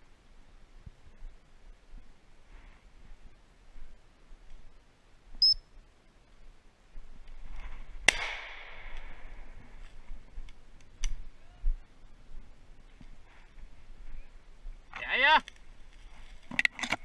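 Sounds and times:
high chirp: 5.4s - 5.7s
shotgun shot echoing: 8.1s - 9.2s.

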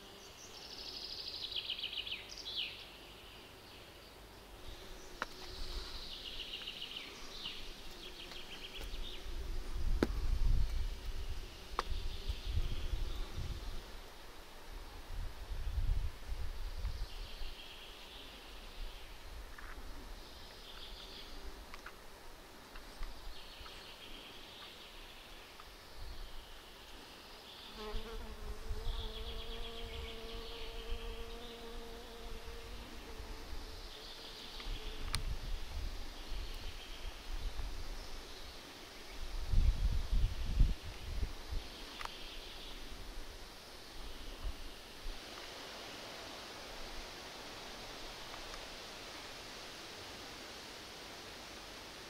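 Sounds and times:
flying insect buzzing: 4.4s - 14.2s, 27.6s - 35.7s
wind rumble on microphone: 8.9s - 14.0s, 14.8s - 17.6s, 34.7s - 38.2s, 39.1s - 41.7s
small birds chirping and trilling: 22.8s - 35.3s.

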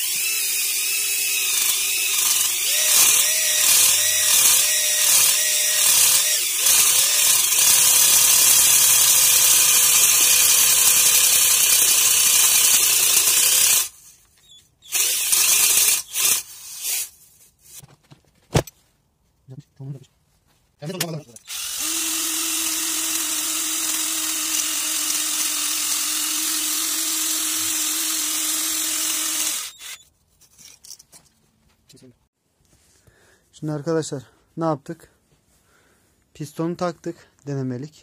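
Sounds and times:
cordless drill spinning: 0.0s - 17.2s, 21.3s - 30.1s.

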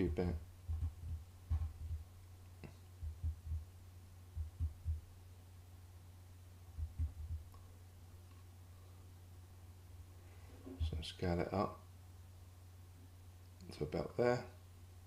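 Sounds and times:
steady low hum: 0.0s - 15.0s
keyboard keys thumping: 0.7s - 2.0s, 4.4s - 5.0s, 6.8s - 7.5s.

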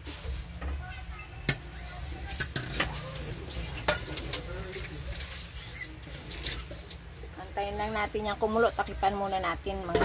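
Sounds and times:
kitchen clicks and knocks: 2.3s - 3.1s.

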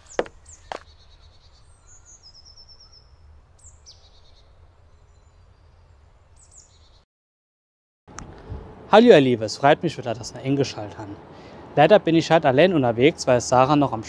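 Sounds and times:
birds calling: 0.0s - 7.0s.

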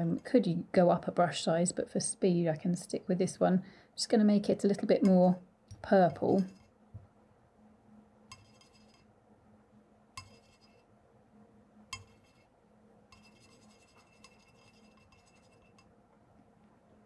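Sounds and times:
brush scrubbing paint: 8.3s - 9.1s, 10.2s - 10.8s, 12.0s - 12.5s, 13.1s - 15.9s.

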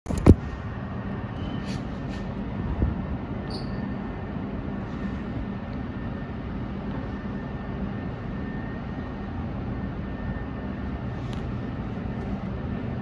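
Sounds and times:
low rumble and hiss of metro: 0.1s - 13.0s.

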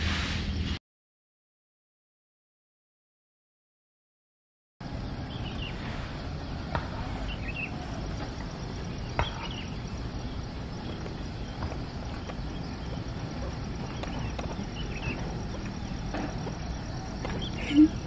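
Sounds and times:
low rumbling noise: 4.8s - 18.0s
high bird chirps: 8.9s - 18.0s.

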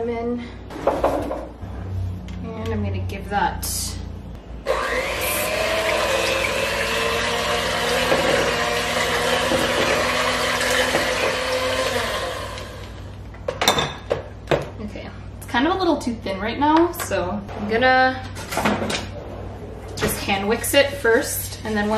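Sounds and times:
electric hand mixer running: 4.6s - 13.0s.

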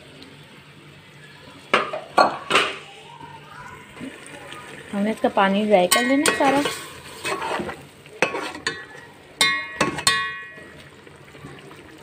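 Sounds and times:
faint sizzle: 0.0s - 12.0s
metal spatula clinking on pot: 5.9s - 7.6s, 8.2s - 10.6s.

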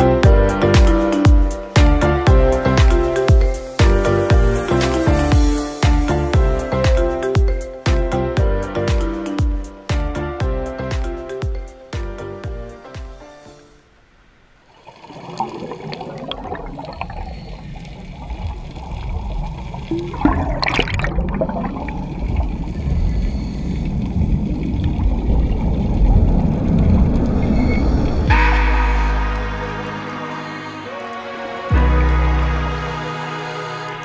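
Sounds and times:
music: 0.0s - 13.8s, 28.3s - 34.0s
scuba exhaust bubbles: 14.8s - 28.2s
low underwater rumble: 15.2s - 29.8s.

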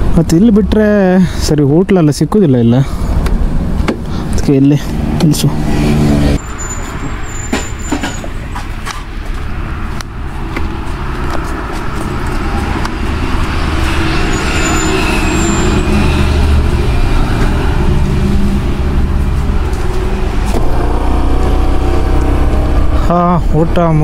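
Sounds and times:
road vehicle rumble: 0.0s - 24.0s
scooter engine hum: 9.5s - 23.3s.

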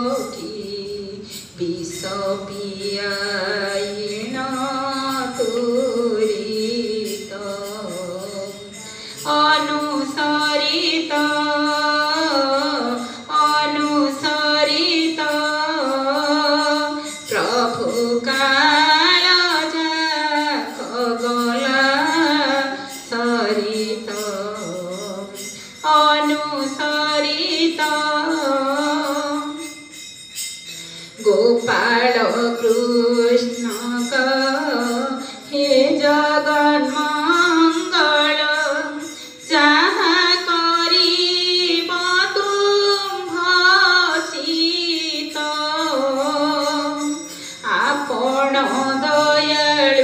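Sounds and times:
light jingling percussion: 0.0s - 50.0s.

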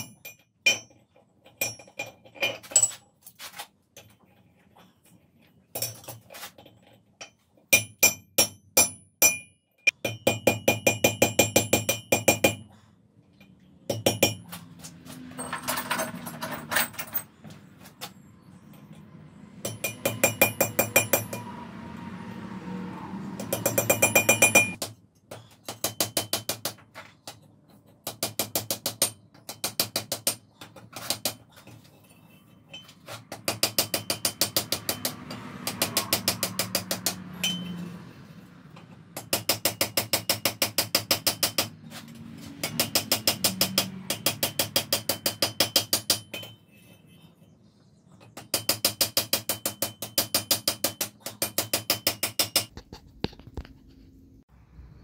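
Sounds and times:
hammer striking iron on anvil: 7.7s - 12.6s, 13.9s - 14.5s, 19.6s - 21.6s, 23.4s - 24.9s, 33.4s - 37.8s, 42.6s - 46.6s.

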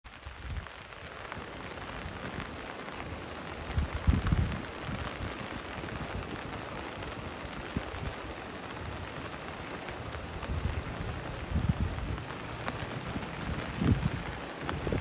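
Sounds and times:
heavy rain hissing: 0.1s - 15.0s
rushing flooded river: 0.1s - 15.0s
wind buffeting microphone: 0.2s - 15.0s.

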